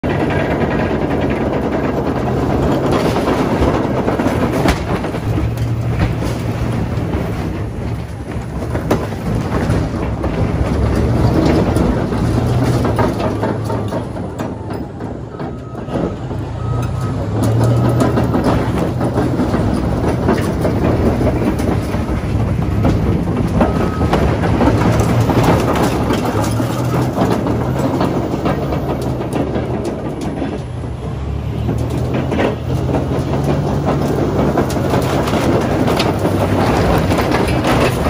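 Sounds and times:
metal body being crushed: 0.0 - 16.5, 17.2 - 30.7, 31.6 - 38.0
bulldozer diesel engine under load: 0.0 - 38.0
steel tracks clanking: 0.0 - 38.0.

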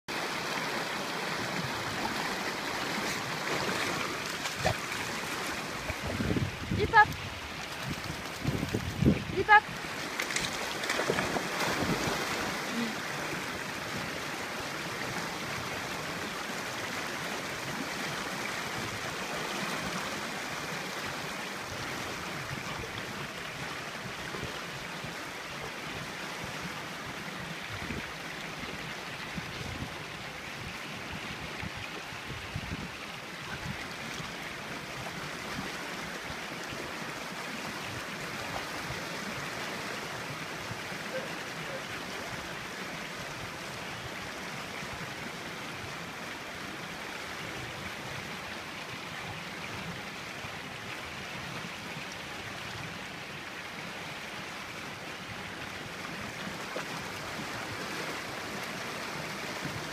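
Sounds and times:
river rushing over rocks: 0.1 - 59.9.

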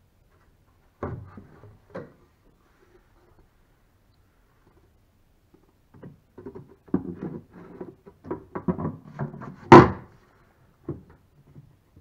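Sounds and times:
wooden cover knocking and scraping: 6.0 - 10.1, 10.8 - 11.7.

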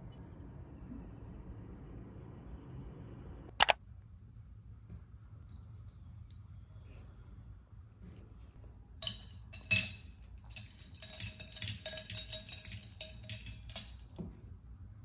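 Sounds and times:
ice clinking against glass: 9.0 - 14.2.

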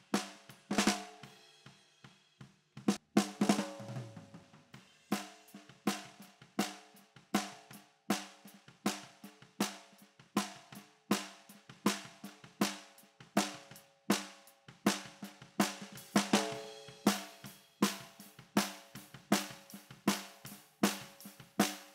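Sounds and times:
snare drum strokes: 2.9 - 4.5, 14.2 - 21.9.

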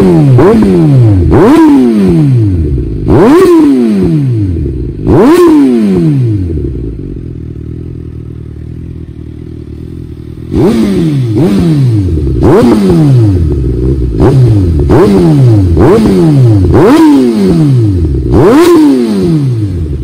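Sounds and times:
motorcycle engine revving and idling: 0.0 - 20.0.

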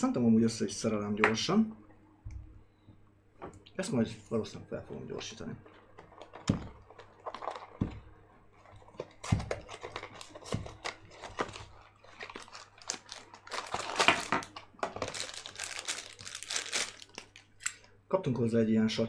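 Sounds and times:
plastic packaging crinkling: 5.6 - 17.9.

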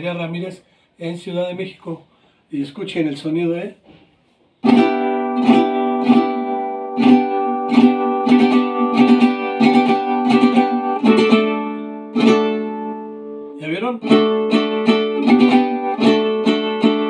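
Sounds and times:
strummed guitar chords: 4.6 - 17.0.

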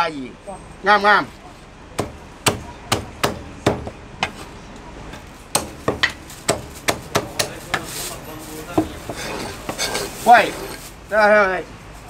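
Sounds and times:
cleaver chopping on wooden block: 2.0 - 4.4, 5.5 - 7.9.

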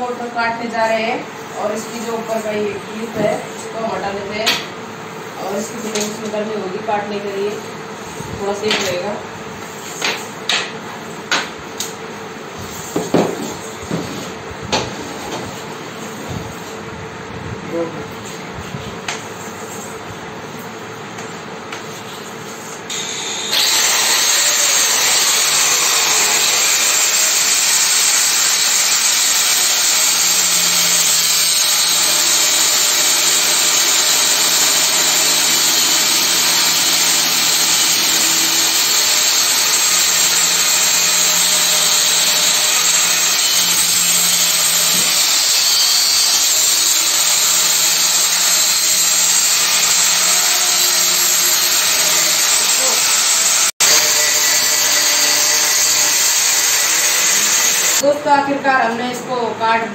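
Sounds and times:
angle grinder cutting metal: 22.9 - 58.0.

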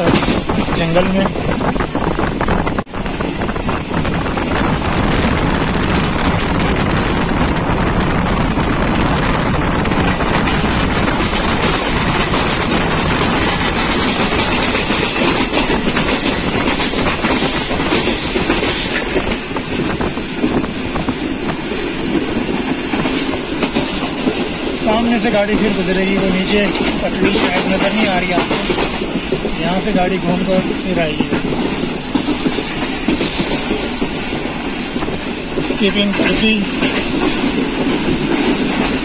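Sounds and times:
rushing air: 0.0 - 24.8
train wheels rumbling on track: 0.0 - 39.0.

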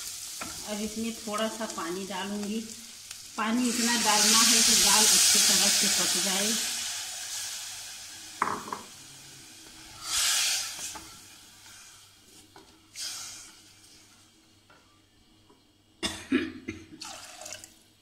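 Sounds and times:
water hissing on hot pan: 0.0 - 14.3.

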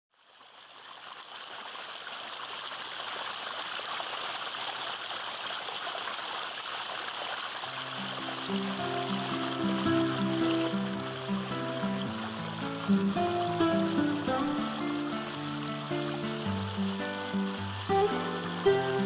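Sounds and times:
water splashing down rocks: 0.2 - 19.0
background music: 8.2 - 19.0.

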